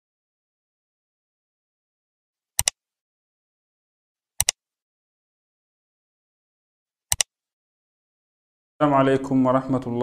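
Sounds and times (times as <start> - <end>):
double mouse clicks: 2.6 - 2.8, 4.4 - 4.6, 7.1 - 7.3.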